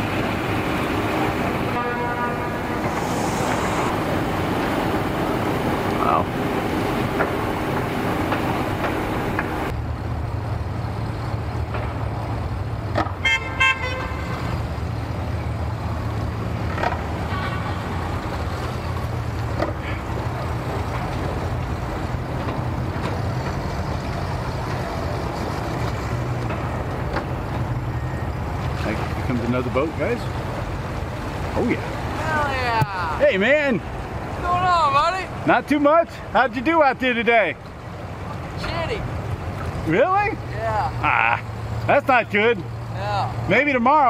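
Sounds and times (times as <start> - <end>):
pulsing honk: 1.6 - 4.0, 13.2 - 14.6, 17.2 - 18.1.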